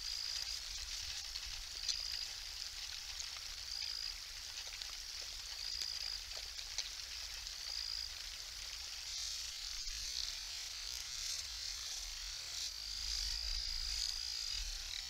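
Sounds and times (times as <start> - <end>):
steady high hiss: 0.0 - 6.2
faint ticks: 0.0 - 12.0.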